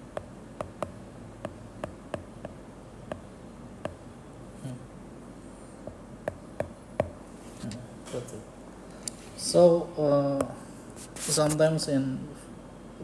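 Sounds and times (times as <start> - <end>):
stylus tapping on glass screen: 0.0 - 4.0, 5.8 - 7.2
low steady hiss: 0.0 - 13.0.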